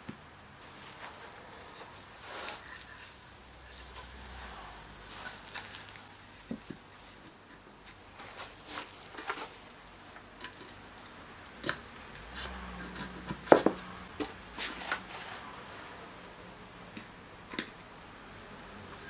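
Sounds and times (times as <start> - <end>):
wood knocking and scraping: 11.6 - 15.0.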